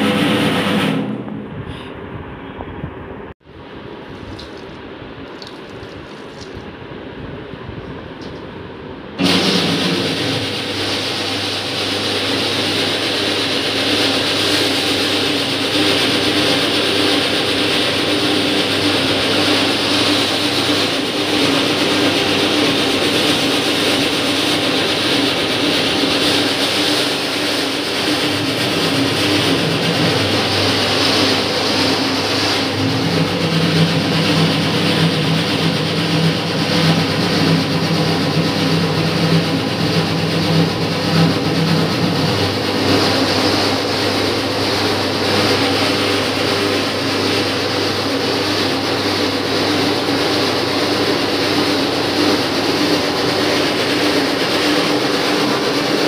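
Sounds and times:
dough kneader motor humming: 9.2s - 56.0s.

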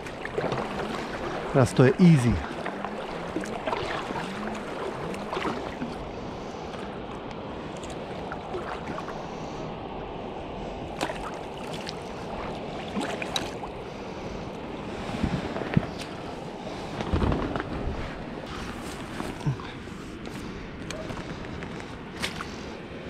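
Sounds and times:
river water rushing: 0.0s - 7.0s.

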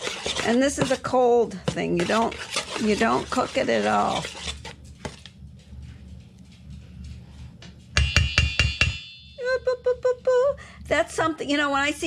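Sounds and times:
spoon striking a bowl rim: 8.0s - 9.4s.

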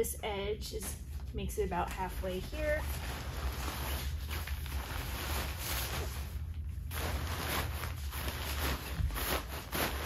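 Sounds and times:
steady low hum: 0.0s - 10.0s
fabric rustling: 2.2s - 10.0s.

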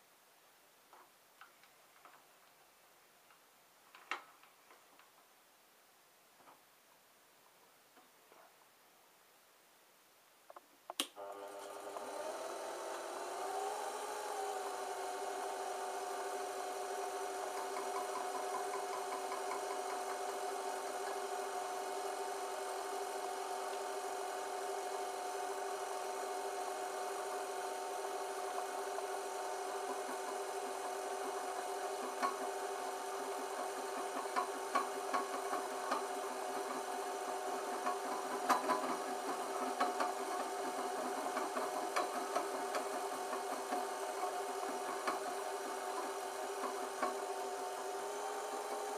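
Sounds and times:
metal lathe whining: 11.2s - 48.9s.

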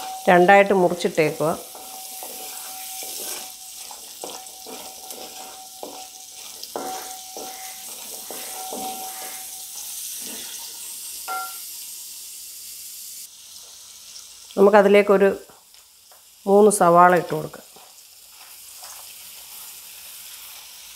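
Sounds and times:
metal pan ringing: 0.0s - 9.9s, 11.2s - 11.7s
aromatics sizzling in oil: 0.0s - 20.9s
wooden spatula scraping pan: 1.2s - 10.8s
ringing knock on pan: 6.8s - 9.7s, 11.3s - 11.6s.

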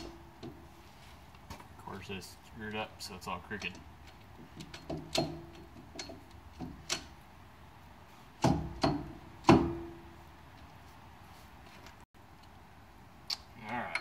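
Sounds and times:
metal hub clunking on axle: 3.5s - 7.2s, 8.4s - 10.2s.

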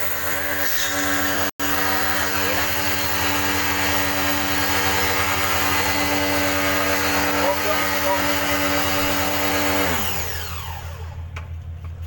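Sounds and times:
pressure washer motor hum: 0.0s - 12.0s
water jet spraying: 2.1s - 9.5s.

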